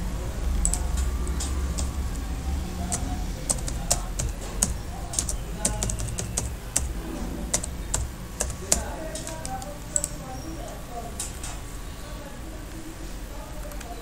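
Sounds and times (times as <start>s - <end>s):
keyboard keys clicking: 0.5s - 10.2s, 13.6s - 14.0s.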